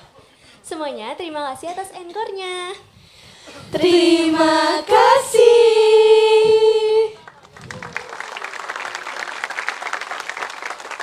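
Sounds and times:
audience clapping: 0:07.2 - 0:11.0.

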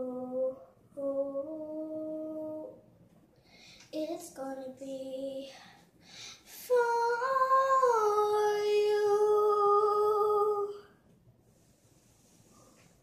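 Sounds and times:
girl singing unaccompanied: 0:00.0 - 0:02.9, 0:03.8 - 0:11.0.

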